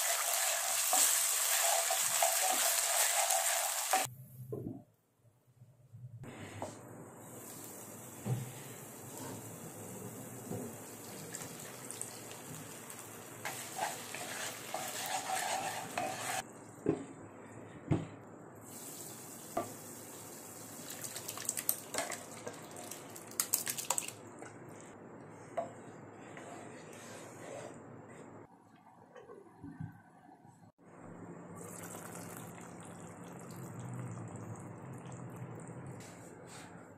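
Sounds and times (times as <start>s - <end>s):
spoon stirring and scraping pan: 13.4s - 16.4s, 25.4s - 28.3s.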